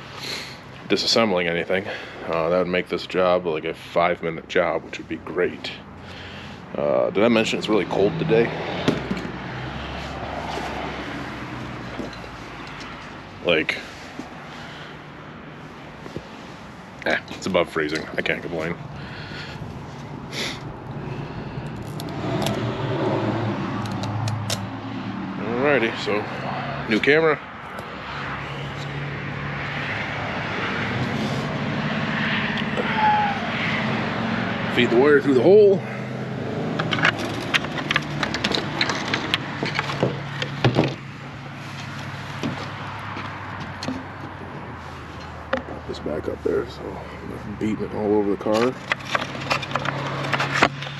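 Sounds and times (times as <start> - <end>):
plastic trim clicks and rustling: 36.8 - 40.9, 48.6 - 50.9.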